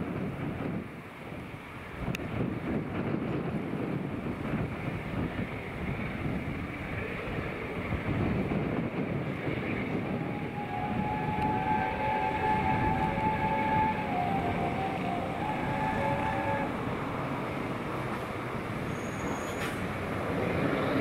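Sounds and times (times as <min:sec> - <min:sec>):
steam locomotive exhaust rumble: 0:00.0 - 0:21.0
steam whistle: 0:09.8 - 0:16.8.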